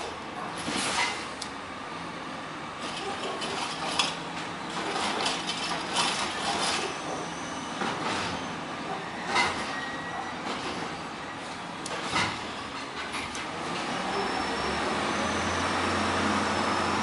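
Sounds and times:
garbage truck arm dumping cart: 0:00.0 - 0:01.4, 0:02.7 - 0:17.0
cart and trash clattering: 0:02.8 - 0:11.1.

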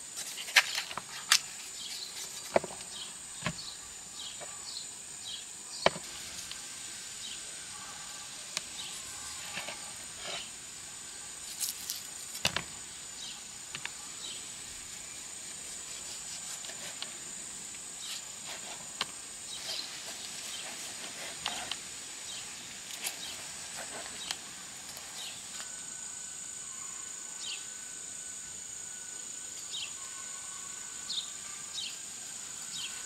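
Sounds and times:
high-pitched insect chirring: 0:06.3 - 0:18.2, 0:22.3 - 0:33.0.

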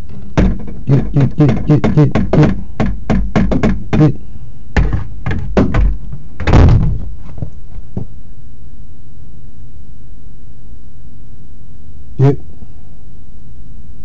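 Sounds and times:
knocking on front door: 0:00.4 - 0:04.2, 0:04.8 - 0:07.1.

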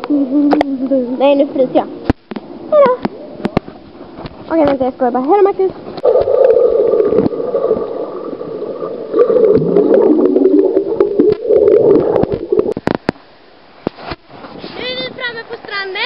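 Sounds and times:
muffled underwater gurgling: 0:06.0 - 0:13.0.

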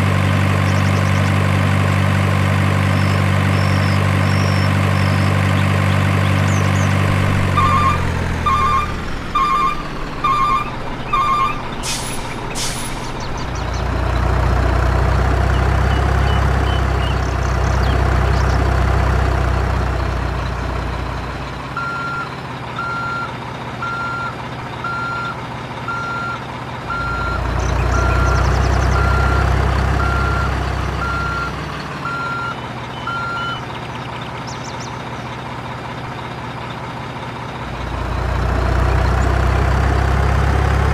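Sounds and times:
diesel engine rumbling: 0:00.0 - 0:40.9
reversing alarm beeping: 0:07.4 - 0:11.7, 0:21.8 - 0:33.6
air brake hisses: 0:11.8 - 0:13.1.

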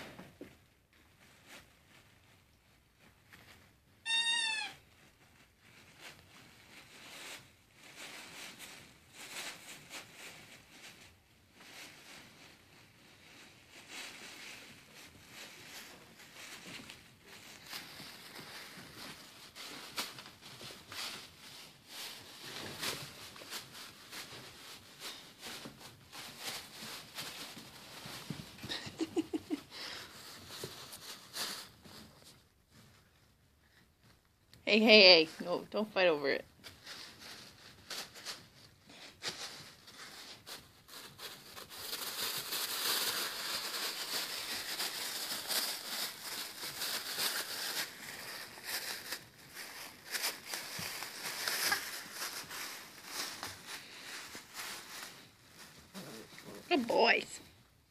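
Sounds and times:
puppies scuffling and rustling: 0:00.0 - 0:57.9
puppy squealing: 0:04.1 - 0:04.8.

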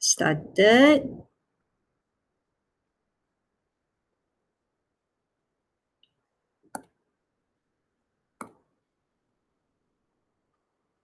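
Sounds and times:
computer mouse clicks: 0:06.0 - 0:07.0, 0:08.4 - 0:08.6.

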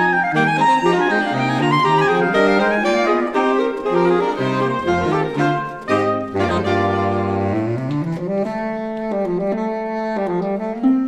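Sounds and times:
saxophone quartet playing: 0:00.0 - 0:11.0
harp playing: 0:00.3 - 0:07.5.

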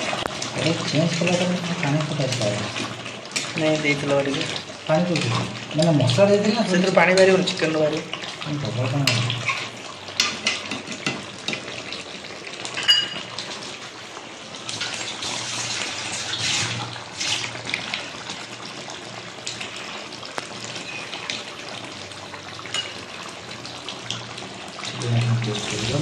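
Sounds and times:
curry bubbling and sizzling in a pan: 0:00.0 - 0:26.0
spatula scraping a pan: 0:14.7 - 0:17.6.

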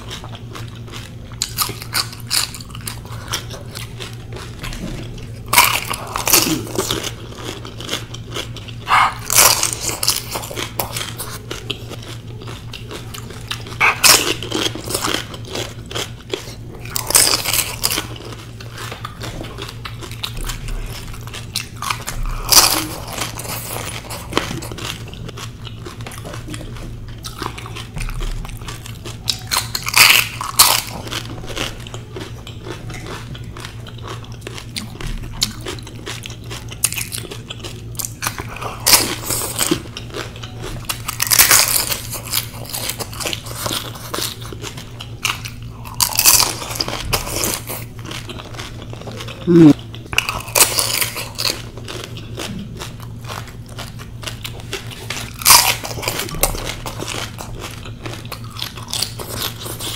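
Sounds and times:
crisp shells crunching: 0:00.0 - 0:59.9
wet chewing: 0:00.0 - 0:59.9.

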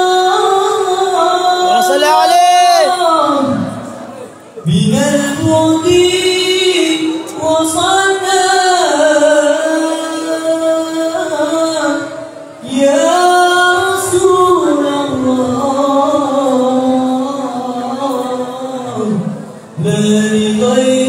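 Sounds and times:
man singing devotional song: 0:00.0 - 0:04.0, 0:04.6 - 0:21.0.

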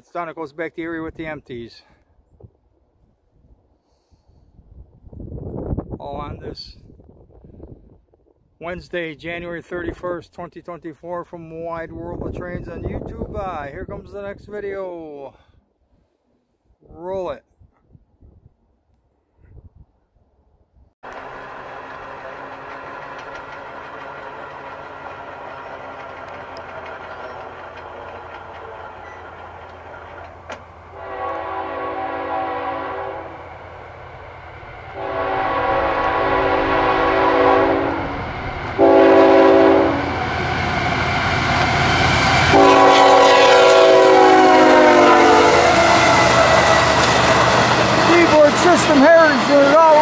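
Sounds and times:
diesel locomotive engine: 0:21.0 - 0:50.0
train air horn blasts: 0:30.9 - 0:33.4, 0:35.0 - 0:38.2, 0:38.8 - 0:40.1, 0:42.4 - 0:47.1.

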